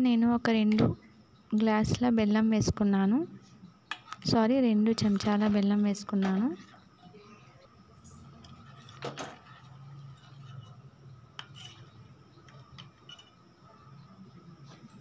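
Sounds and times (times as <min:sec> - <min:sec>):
faint steady hum: 0:00.0 - 0:15.0
spoon stirring in a steel pot: 0:03.9 - 0:14.2.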